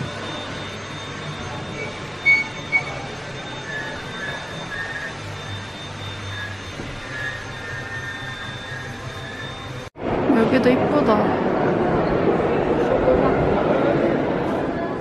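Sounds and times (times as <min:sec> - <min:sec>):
short high beeps: 0:00.0 - 0:09.8
steady low hum: 0:00.0 - 0:15.0.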